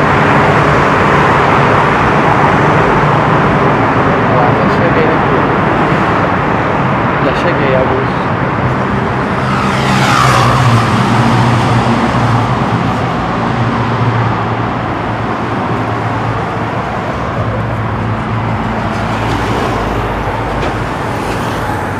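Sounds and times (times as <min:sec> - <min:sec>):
car engines and tyre noise: 0:00.0 - 0:21.9
vehicle passing close: 0:08.1 - 0:21.9.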